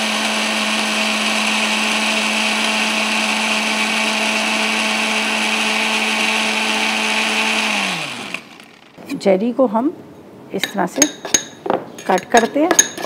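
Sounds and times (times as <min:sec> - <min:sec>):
electric blender running: 0:00.0 - 0:09.0.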